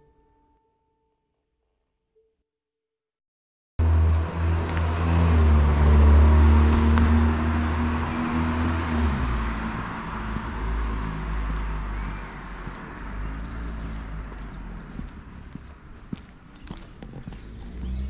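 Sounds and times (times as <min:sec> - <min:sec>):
vehicle engine humming: 0:03.8 - 0:18.0.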